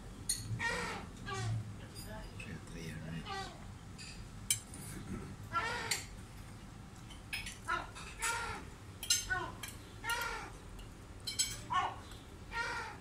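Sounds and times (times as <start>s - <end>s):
gull calling: 0.6s - 1.6s, 5.5s - 6.1s, 7.7s - 8.7s, 9.3s - 10.6s, 11.7s - 13.0s
cutlery clinking on dishes: 4.0s - 4.9s, 9.0s - 11.7s.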